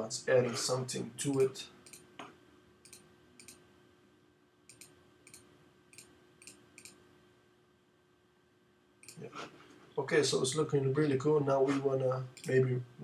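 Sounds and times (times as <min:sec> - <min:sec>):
computer mouse clicks: 0:01.2 - 0:02.1, 0:02.8 - 0:03.6, 0:04.7 - 0:07.0, 0:09.0 - 0:09.2, 0:12.4 - 0:12.6.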